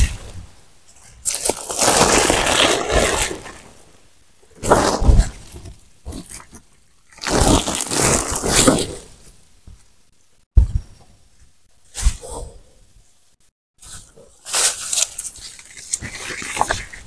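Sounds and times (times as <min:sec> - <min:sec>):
plastic sack rustling and scraping: 0:01.2 - 0:04.0, 0:07.2 - 0:09.2.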